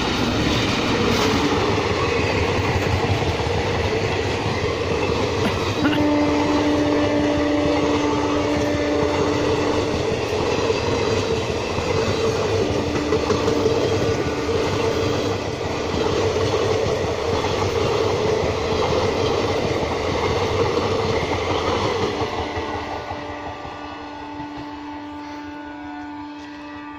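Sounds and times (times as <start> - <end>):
train wheels rushing on rails: 0.0 - 26.9
train whine: 0.0 - 26.9.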